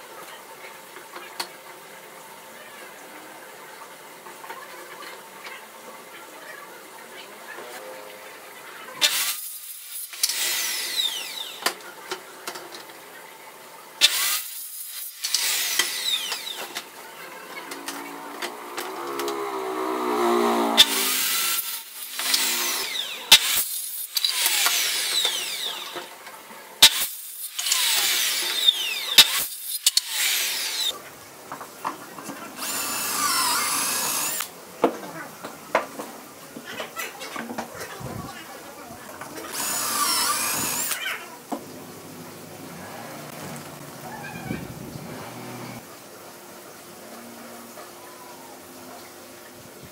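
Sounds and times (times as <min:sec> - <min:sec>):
circular saw cutting wood: 0:09.0 - 0:11.8, 0:14.0 - 0:26.2, 0:26.8 - 0:31.0, 0:32.5 - 0:34.5, 0:39.4 - 0:41.3, 0:42.4 - 0:43.9, 0:44.8 - 0:45.8
cordless drill boring holes: 0:09.0 - 0:11.8, 0:14.0 - 0:16.9, 0:17.7 - 0:26.2, 0:26.8 - 0:31.0, 0:32.6 - 0:34.5, 0:39.5 - 0:41.2.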